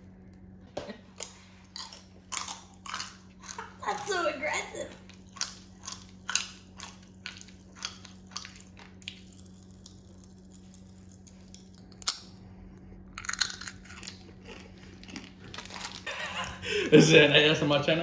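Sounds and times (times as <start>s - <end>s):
chewing cookie: 0.0s - 4.2s, 4.8s - 16.6s
popping candy crackling: 1.7s - 12.4s.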